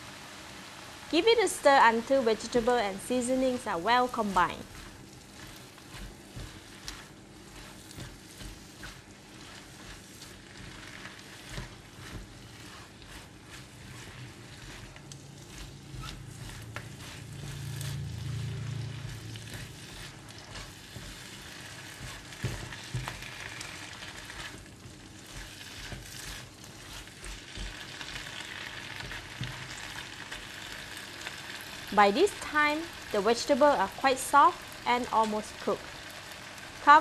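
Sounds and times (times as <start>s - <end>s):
vegetables sizzling in a wok: 0.0s - 37.0s
spatula scraping a pan: 2.4s - 31.9s.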